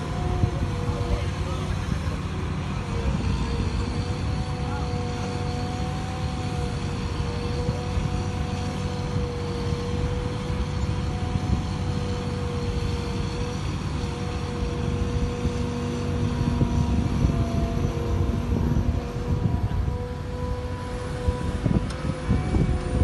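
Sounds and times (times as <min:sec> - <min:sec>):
excavator diesel engine rumble: 0:00.0 - 0:23.0
hydraulic whine: 0:00.0 - 0:23.0.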